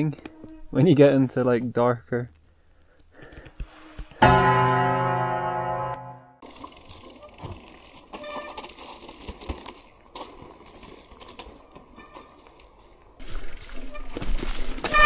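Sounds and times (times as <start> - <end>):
bikes clicking and rattling: 0.0 - 4.2, 6.4 - 15.0
bike tyres rolling on dirt: 6.4 - 15.0.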